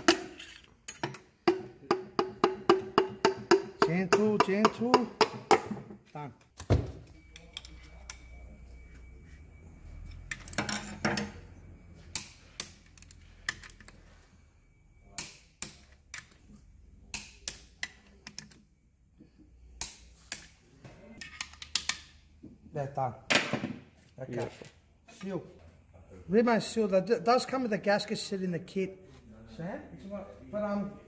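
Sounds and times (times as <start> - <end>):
metal clinks: 0.0 - 1.4.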